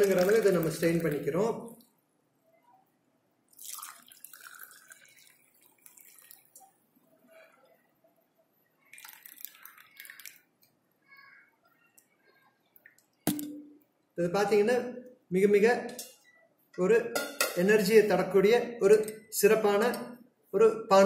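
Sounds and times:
liquid trickling and dripping: 0.0s - 2.0s, 3.5s - 7.8s, 8.8s - 10.8s.

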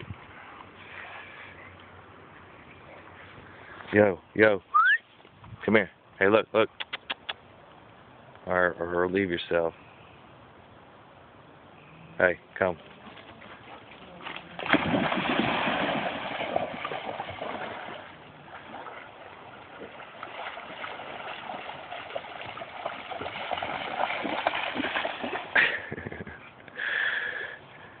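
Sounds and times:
running water: 12.6s - 26.4s
dog splashing and swimming: 12.8s - 26.5s.

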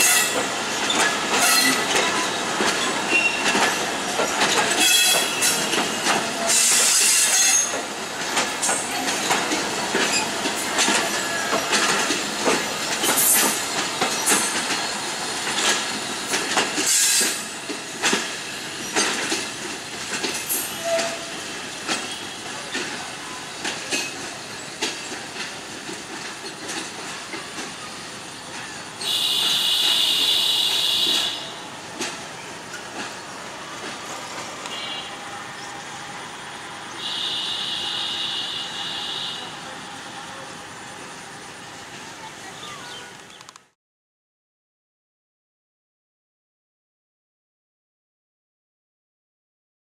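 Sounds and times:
wheels clicking over rail joints: 0.1s - 35.0s, 40.3s - 43.8s.

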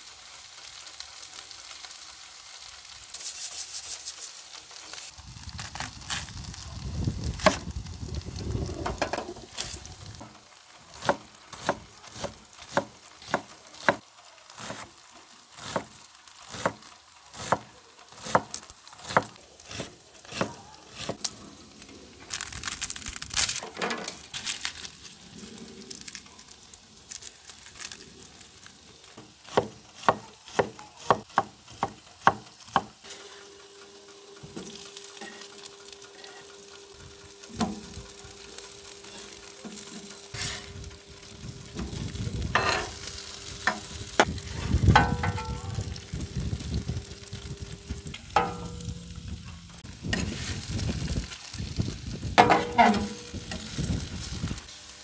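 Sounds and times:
food sizzling on griddle: 0.0s - 55.0s
metal spatulas scraping: 39.9s - 40.8s, 42.6s - 43.0s, 52.4s - 53.3s.

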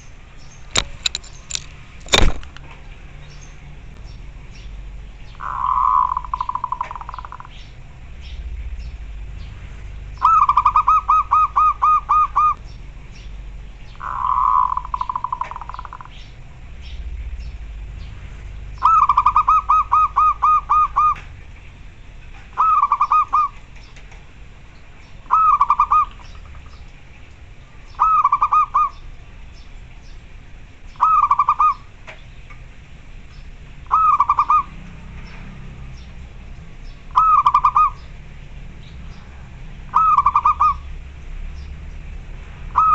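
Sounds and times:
dove cooing: 5.4s - 7.5s, 10.2s - 12.7s, 13.9s - 16.2s, 18.8s - 21.3s, 22.5s - 23.6s, 25.2s - 26.4s, 28.0s - 29.0s, 31.0s - 31.9s, 33.9s - 34.8s, 37.1s - 38.1s, 39.9s - 40.9s.

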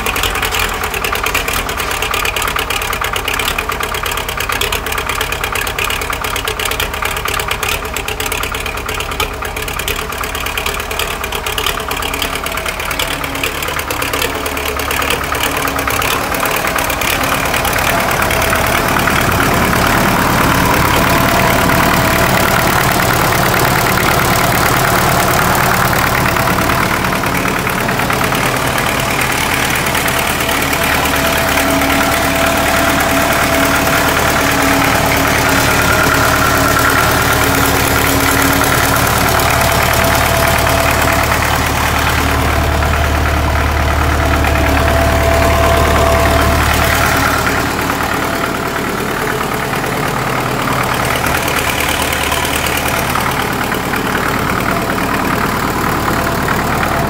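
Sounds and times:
tractor diesel engine idling: 0.0s - 57.0s.

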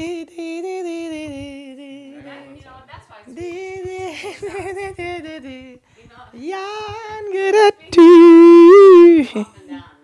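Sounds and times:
young man singing: 0.0s - 2.6s, 3.3s - 9.4s.

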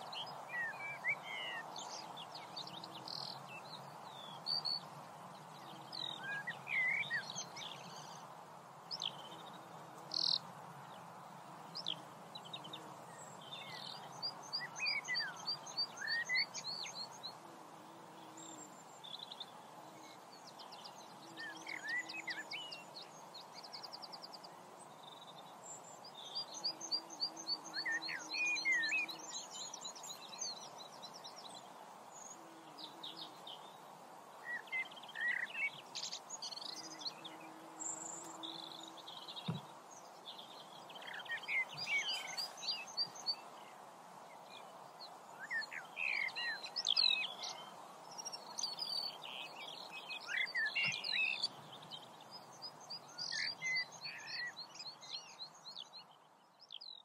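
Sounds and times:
steady background hiss: 0.0s - 57.0s
birds singing and chirping: 11.8s - 17.4s, 18.3s - 23.9s, 25.0s - 33.8s, 34.4s - 43.7s, 45.4s - 57.0s.

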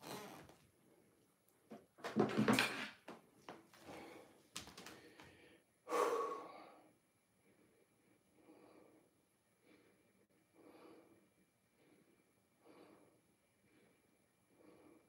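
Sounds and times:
person breathing: 3.8s - 15.0s.

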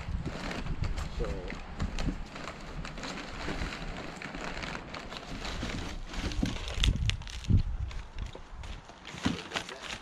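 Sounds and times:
low wind rumble on microphone: 0.0s - 4.2s, 5.4s - 8.8s
plastic wrapping rustling: 0.2s - 10.0s.

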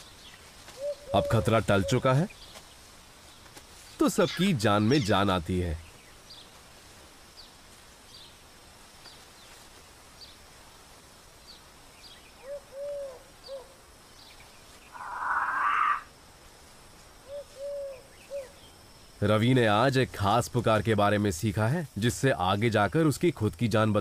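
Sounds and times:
low hooting calls: 0.8s - 2.2s, 12.4s - 13.8s, 14.9s - 16.1s
harsh rasp call: 15.0s - 16.1s.

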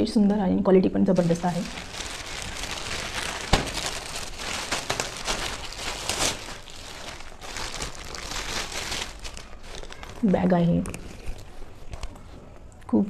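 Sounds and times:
plastic packaging crinkling: 1.1s - 12.2s
plastic packaging snapping: 1.2s - 11.4s.

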